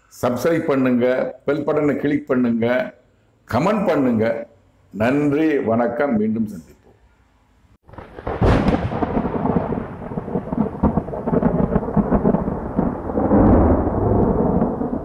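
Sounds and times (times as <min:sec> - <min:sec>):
thunder rumbling: 0:07.9 - 0:15.0.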